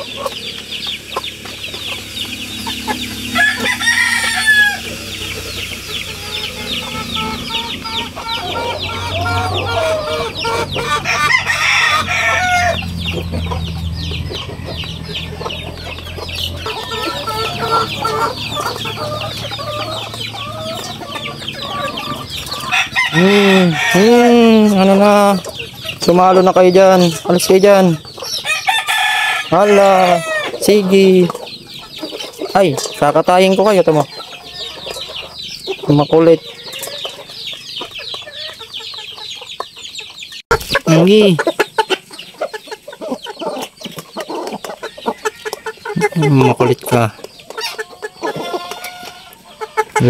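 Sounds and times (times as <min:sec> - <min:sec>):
chickens clucking: 0:00.0 - 0:50.0
rooster crowing: 0:02.8 - 0:05.4, 0:06.1 - 0:24.7, 0:28.4 - 0:30.7, 0:48.2 - 0:49.5.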